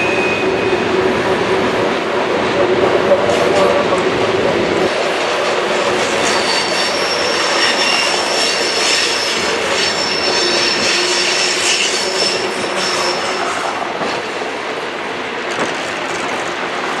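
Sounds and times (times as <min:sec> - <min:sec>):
steel wheels rumbling on rail: 0:00.0 - 0:17.0
wheel squeal: 0:06.2 - 0:13.6.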